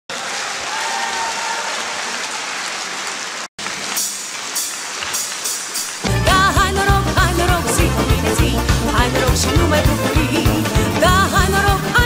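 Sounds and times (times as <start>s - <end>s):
audience applauding: 0.1s - 6.7s.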